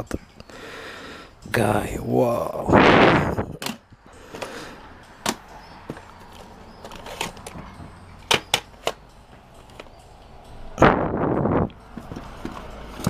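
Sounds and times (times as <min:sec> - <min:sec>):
plastic cassette cases clacking: 0:05.2 - 0:09.0.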